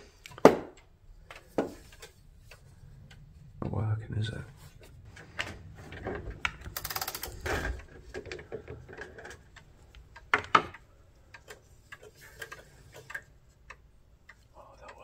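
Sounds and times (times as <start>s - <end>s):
clock mechanism clicking: 0.0s - 3.6s, 4.8s - 15.0s
ratcheting: 5.9s - 14.4s.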